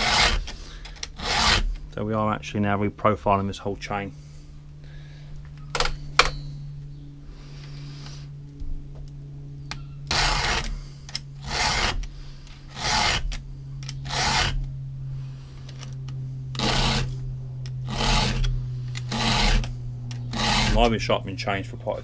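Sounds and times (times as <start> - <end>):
file rasping on chainsaw teeth: 0.0 - 1.7, 10.1 - 10.8, 11.4 - 12.0, 12.7 - 13.4, 14.0 - 14.7, 16.5 - 17.2, 17.8 - 21.0.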